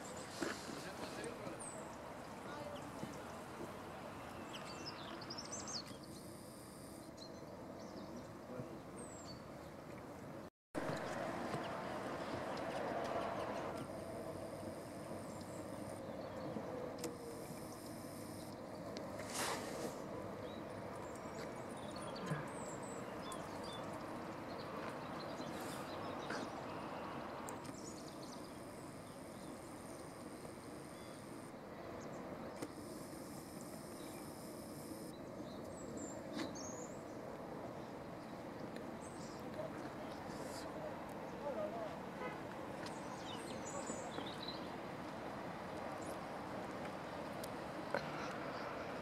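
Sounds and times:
steady background hiss: 13.7s - 20.4s, 26.6s - 49.0s.

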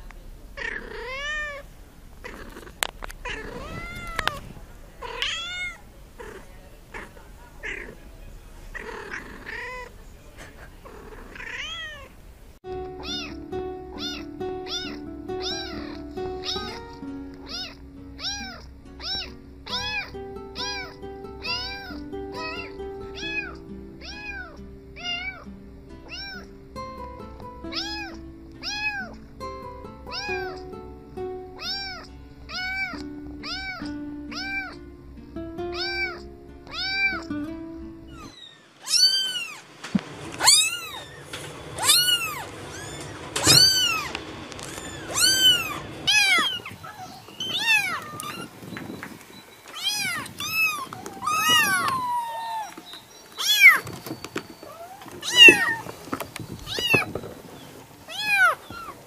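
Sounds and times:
kitten meowing: 0.6s - 1.6s, 2.2s - 8.0s, 8.8s - 9.9s, 10.9s - 12.1s, 13.0s - 13.4s, 14.0s - 25.4s, 26.0s - 26.5s, 27.7s - 29.2s, 30.1s - 30.7s, 31.6s - 34.8s, 35.7s - 37.3s, 38.1s - 39.6s, 40.4s - 41.2s, 41.8s - 48.6s, 49.7s - 53.9s, 54.6s - 55.9s, 56.6s - 57.2s, 58.1s - 59.0s
background music: 12.7s - 38.2s
high-pitched kitten mews: 13.0s - 13.4s, 14.0s - 16.8s, 17.4s - 25.4s, 26.1s - 26.5s, 30.1s - 30.6s, 31.6s - 34.8s, 35.7s - 37.2s, 38.1s - 39.6s, 44.7s - 48.5s, 49.7s - 52.8s.

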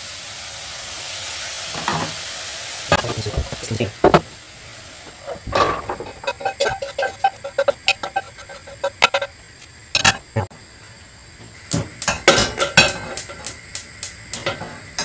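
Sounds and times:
frying pan knocking and scraping: 2.9s - 4.4s, 5.1s - 9.4s, 11.7s - 13.6s
pots clinking on metal grates: 5.1s - 9.4s, 12.0s - 13.6s.

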